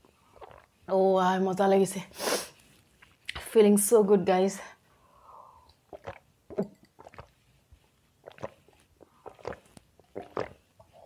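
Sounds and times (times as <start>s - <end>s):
person gulping milk: 0.1s - 0.8s, 5.6s - 7.4s, 8.2s - 11.0s.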